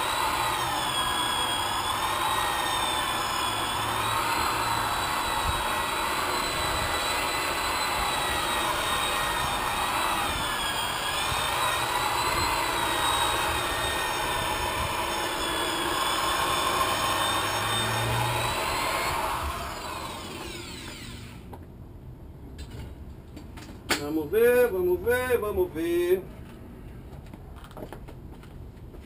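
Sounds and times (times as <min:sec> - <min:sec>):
electric polisher motor whine: 0:00.0 - 0:21.4.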